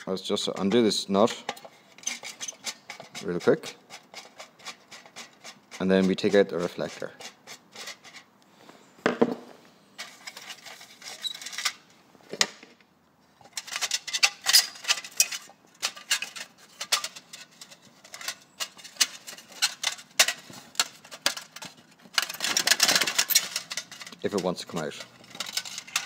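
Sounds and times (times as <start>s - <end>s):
sheet metal clicks and rattles: 13.4s - 26.0s.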